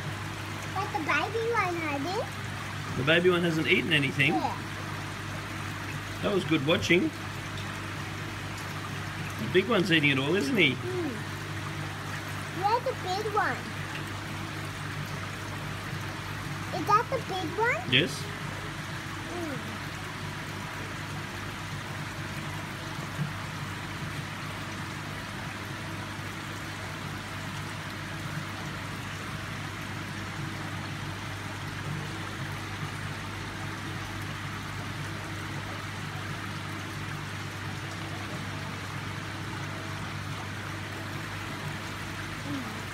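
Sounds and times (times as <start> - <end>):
aquarium water trickling: 0.0 - 42.9
filtration pump hum: 0.0 - 42.9.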